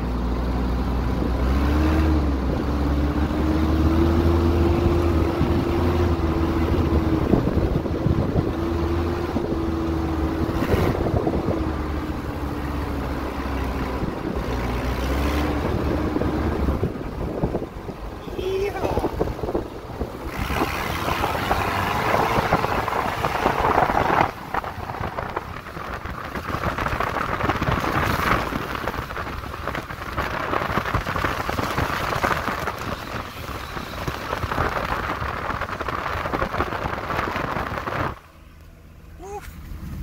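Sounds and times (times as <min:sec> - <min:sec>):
truck driving over field stubble: 0:18.9 - 0:40.0.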